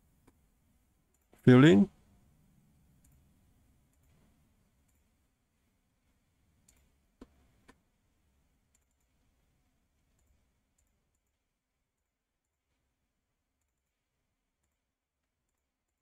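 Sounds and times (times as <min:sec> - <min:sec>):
faint computer mouse clicks: 0:03.0 - 0:03.3, 0:06.6 - 0:07.8.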